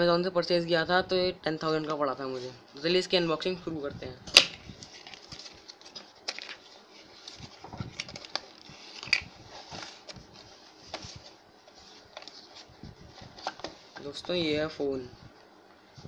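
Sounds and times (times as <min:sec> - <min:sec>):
cardboard snap: 0:04.3 - 0:04.6.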